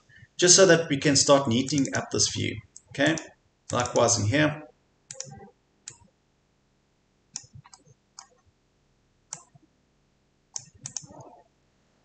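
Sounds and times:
computer mouse clicking: 0:01.7 - 0:04.1, 0:05.1 - 0:06.1, 0:07.4 - 0:08.4, 0:09.3 - 0:09.6, 0:10.6 - 0:11.4.

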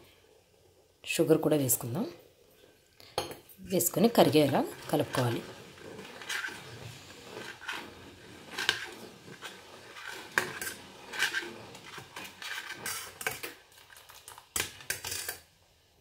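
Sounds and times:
spoon scraping pot: 0:03.2 - 0:15.4.

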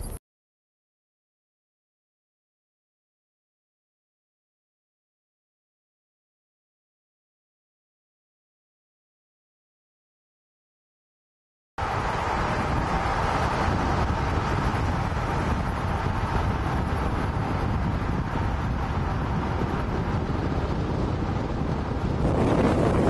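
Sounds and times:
car engine and tyre rumble: 0:11.8 - 0:23.0.

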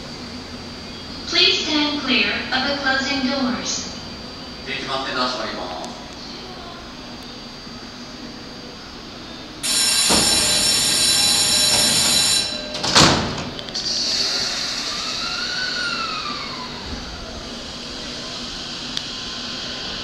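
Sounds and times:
train door warning tone: 0:09.6 - 0:17.4
sliding doors shutting thud: 0:09.9 - 0:13.7.

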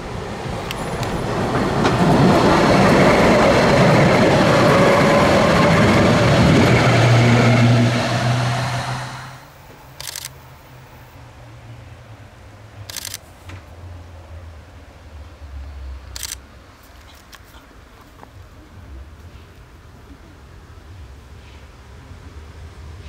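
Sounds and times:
tram wheels rumbling on rails: 0:00.0 - 0:10.0.

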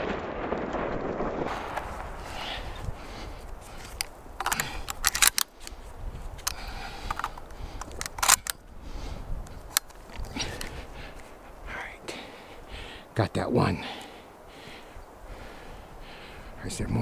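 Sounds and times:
shotgun metallic clicks and snaps: 0:03.4 - 0:08.8, 0:09.4 - 0:11.3.

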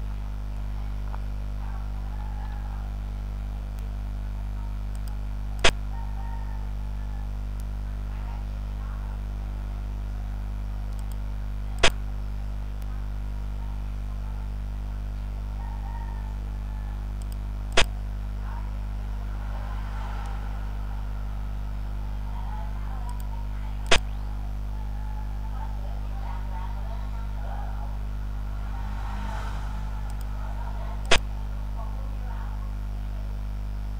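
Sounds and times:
low electrical hum: 0:00.0 - 0:33.9.

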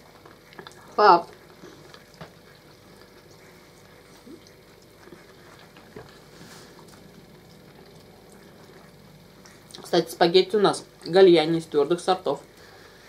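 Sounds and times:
low room noise: 0:00.0 - 0:13.0
soft mouth sounds: 0:00.4 - 0:05.9.

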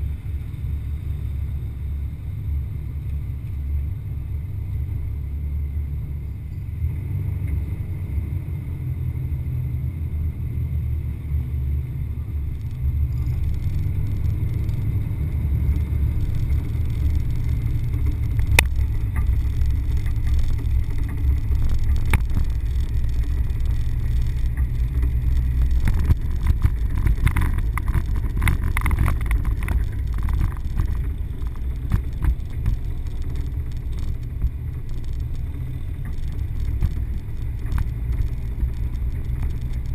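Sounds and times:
off-road vehicle engine rumble: 0:00.0 - 0:39.9
rattling: 0:12.5 - 0:39.9.

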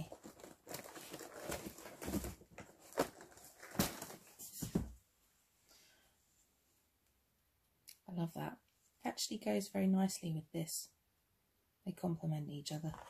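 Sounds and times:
paper rustling: 0:00.0 - 0:04.9.

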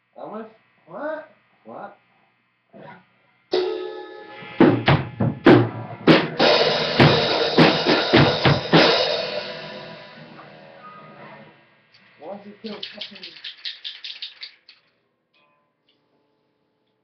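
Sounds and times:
drum kit playing: 0:03.5 - 0:10.8
cymbal crash: 0:03.5 - 0:11.0.

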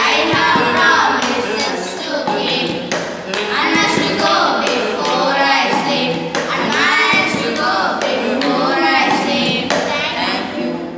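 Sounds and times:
children singing in unison: 0:00.0 - 0:10.9.

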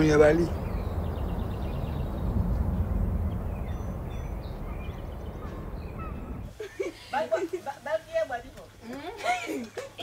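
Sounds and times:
steady low rumble: 0:00.6 - 0:06.5.

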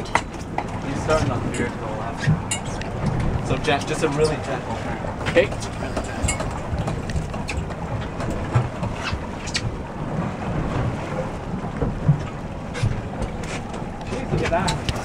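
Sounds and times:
boat motor rumbling: 0:00.0 - 0:15.0
wind on microphone: 0:00.0 - 0:15.0.

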